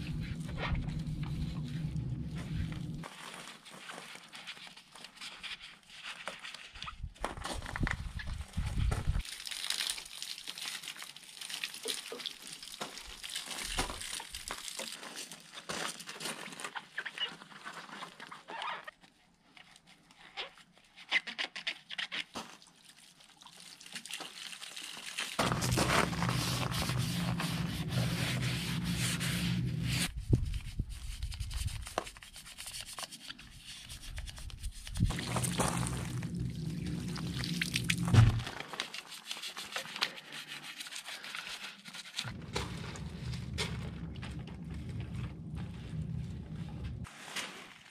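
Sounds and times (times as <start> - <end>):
low hum: 0.0 - 3.0, 25.4 - 30.2, 34.9 - 38.5, 42.3 - 47.1
wash mitt rubbing wheel: 0.0 - 3.0, 25.4 - 30.1, 34.8 - 38.5
soapy scrubbing: 0.0 - 3.3, 23.6 - 30.1, 32.2 - 47.1
water splashing and trickling: 9.2 - 15.4, 22.7 - 29.8, 34.8 - 38.7.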